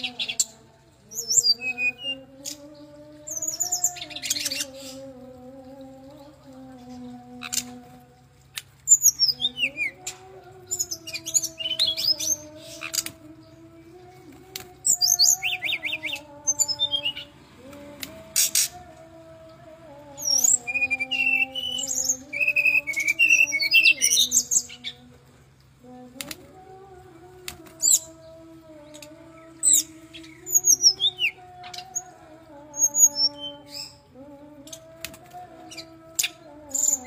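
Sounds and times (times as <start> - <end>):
bird twittering song: 0.0 - 7.9, 8.6 - 18.8, 20.1 - 25.8, 27.7 - 34.1.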